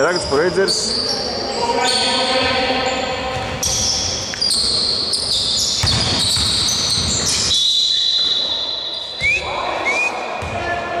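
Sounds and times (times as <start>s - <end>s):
basketball bouncing on wooden floor: 5.8s - 7.3s.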